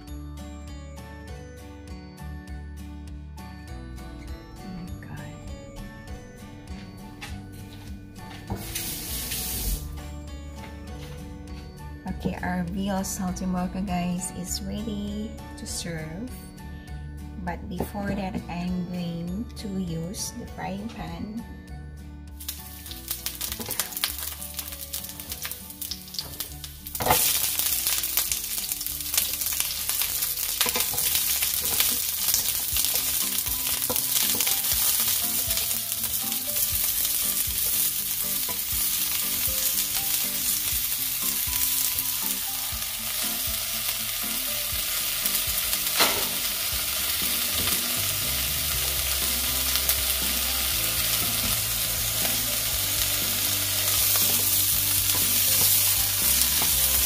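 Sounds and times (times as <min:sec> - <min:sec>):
vegetables sizzling in hot oil: 0:08.6 - 0:09.9, 0:22.4 - 0:57.0.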